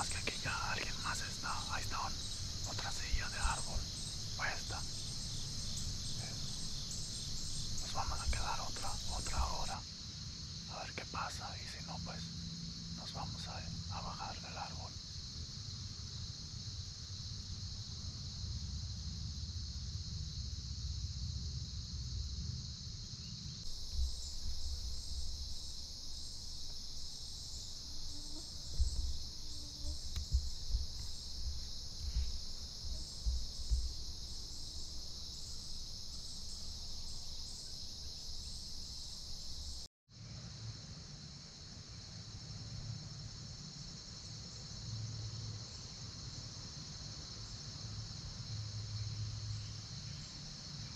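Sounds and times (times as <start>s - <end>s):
crickets and insects chirping: 0.0s - 50.9s
soft thumps: 28.4s - 34.2s.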